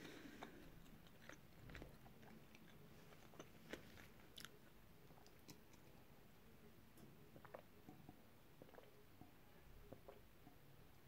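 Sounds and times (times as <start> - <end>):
faint chewing: 0.0 - 6.2.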